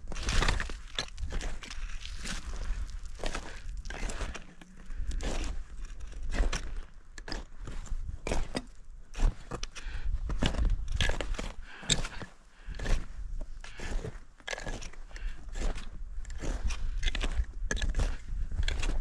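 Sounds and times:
footsteps on snow: 0.0s - 8.5s.

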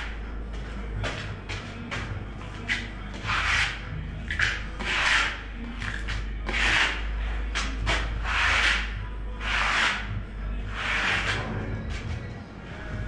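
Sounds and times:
trowel scraping adhesive on wall: 2.7s - 10.1s, 10.7s - 12.0s.

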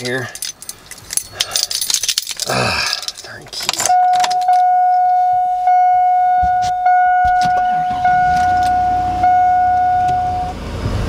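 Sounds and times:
dashboard warning chime: 3.8s - 10.6s.

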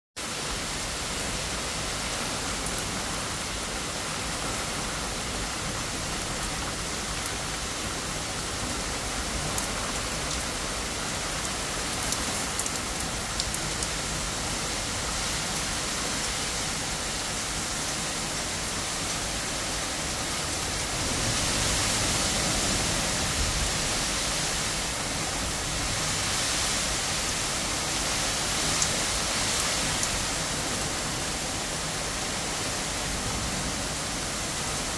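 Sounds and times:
steady rain hiss: 0.2s - 34.9s
raindrops clicking close by: 11.4s - 13.9s.

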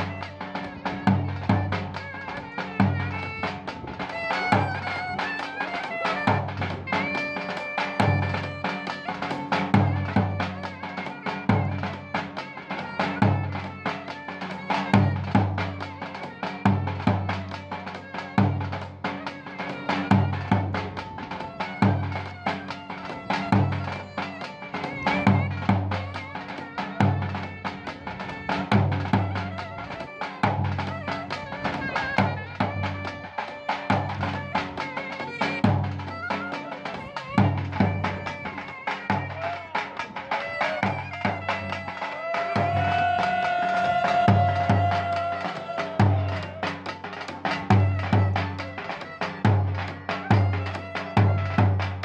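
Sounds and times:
deep drum beating: 42.5s - 48.8s.

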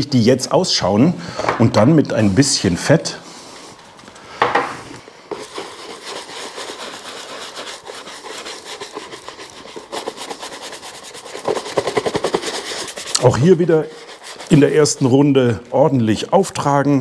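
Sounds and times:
brush scrubbing leather: 5.3s - 15.2s
brush scraping in grease tin: 5.3s - 15.3s.

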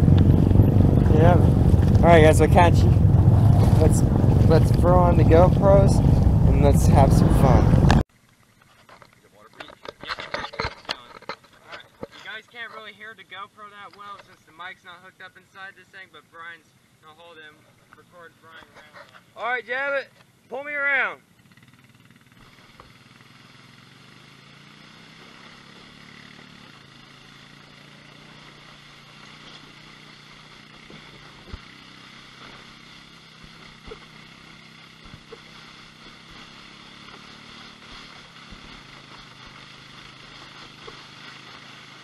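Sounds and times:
muffled utility vehicle engine: 0.0s - 14.5s, 21.2s - 42.0s.

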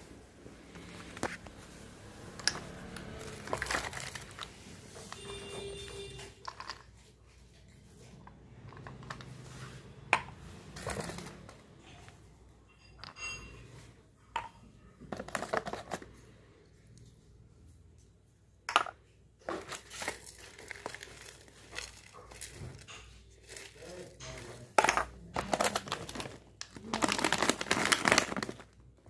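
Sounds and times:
plastic wrappers crinkling: 2.6s - 6.9s, 19.4s - 29.0s
glass jars set down on tiles: 5.1s - 7.0s, 18.7s - 19.0s, 24.8s - 25.4s.

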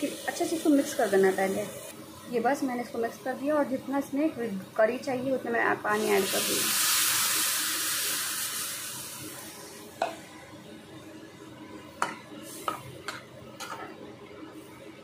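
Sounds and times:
water hissing in hot pan: 0.0s - 1.9s, 5.7s - 10.0s.

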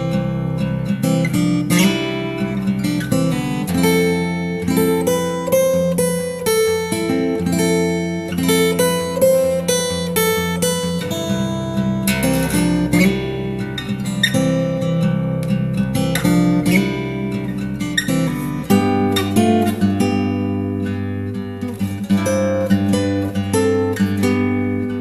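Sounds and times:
acoustic guitar chords: 0.0s - 25.0s.

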